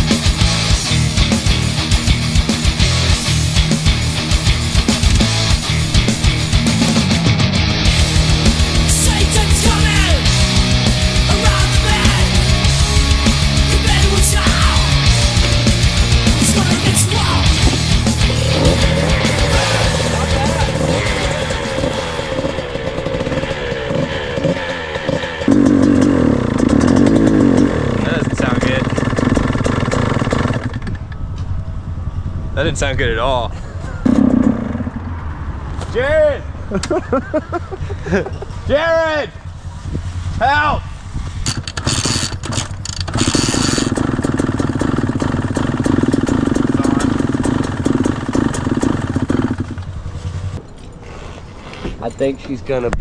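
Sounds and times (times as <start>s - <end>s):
dirt bike engine revving: 0.0s - 36.2s, 41.1s - 51.6s
dirt bike kick-start: 15.5s - 31.6s, 33.9s - 35.1s, 41.2s - 52.6s.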